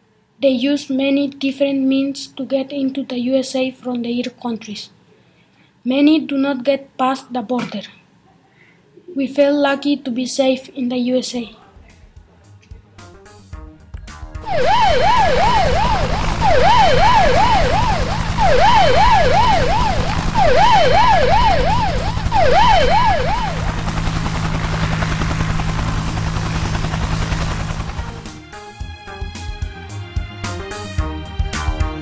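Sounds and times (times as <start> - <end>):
siren wailing: 14.4 - 28.3
helicopter drone: 14.4 - 28.4.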